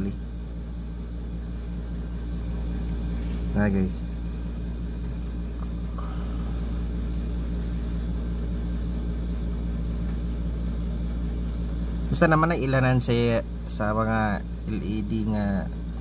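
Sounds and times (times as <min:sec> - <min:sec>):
low hum and rumble: 0:00.0 - 0:16.0.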